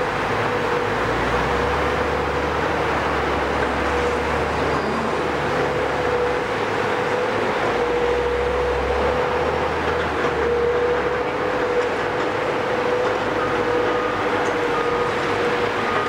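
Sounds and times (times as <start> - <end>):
excavator running under load: 0.0 - 16.0.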